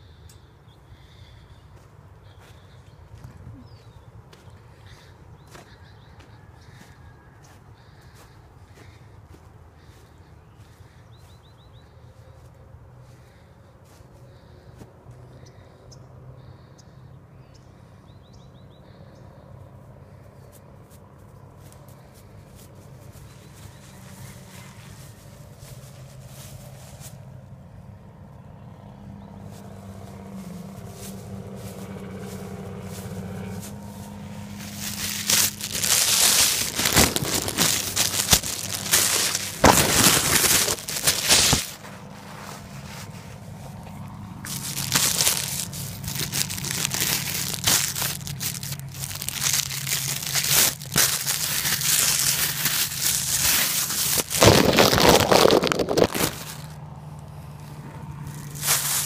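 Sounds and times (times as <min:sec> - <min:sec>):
crinkling rustling: 0:30.6 - 0:56.8, 0:58.2 - 0:59.0.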